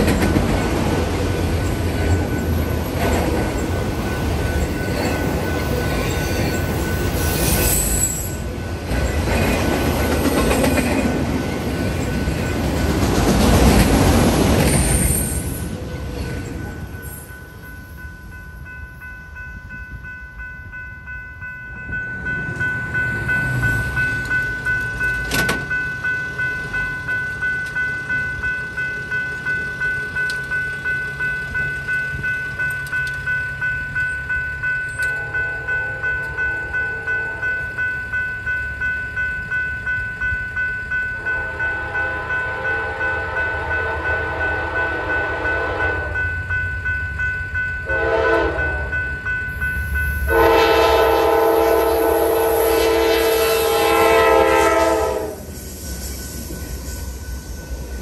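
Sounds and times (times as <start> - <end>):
crossing warning bell ringing: 0.0 - 58.0
locomotive horn blasts: 35.1 - 36.4, 41.2 - 46.2, 47.8 - 49.0, 50.2 - 55.5.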